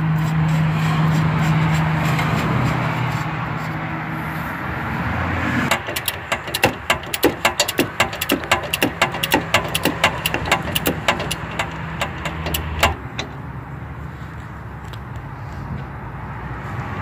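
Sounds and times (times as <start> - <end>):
hand ratchet clicking rapidly: 5.7 - 13.0.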